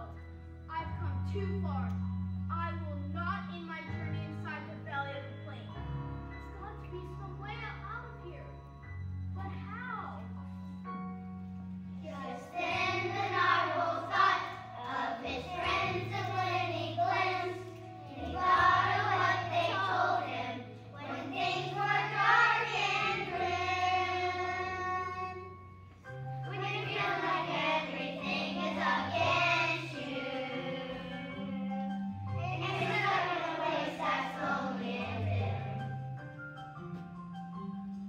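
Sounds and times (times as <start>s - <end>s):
instrumental accompaniment: 0.0s - 38.0s
children singing: 12.1s - 25.6s, 26.5s - 31.8s, 32.4s - 35.8s.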